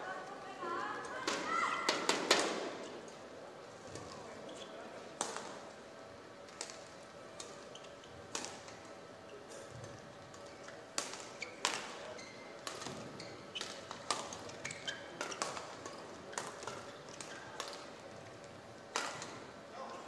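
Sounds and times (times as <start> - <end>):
shoes squeaking on court: 7.4 - 8.2, 9.5 - 17.9
rackets hitting shuttlecock: 10.9 - 12.0, 12.6 - 17.9, 18.9 - 19.5.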